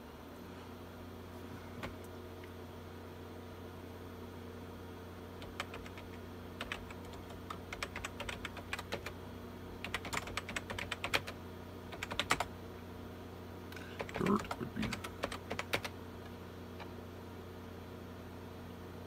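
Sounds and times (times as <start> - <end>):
steady low hum: 0.0 - 19.0
computer keyboard typing: 5.4 - 9.2, 9.8 - 12.5, 14.0 - 16.0.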